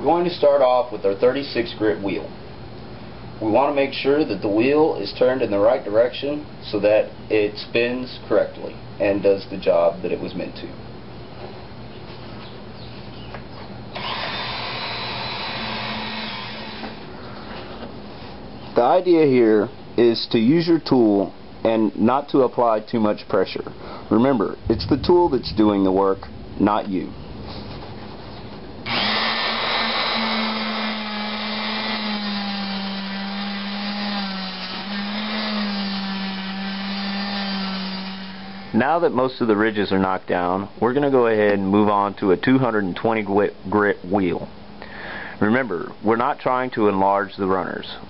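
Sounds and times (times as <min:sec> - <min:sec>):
rotary tool whining: 0:13.9 - 0:17.0, 0:28.8 - 0:38.7.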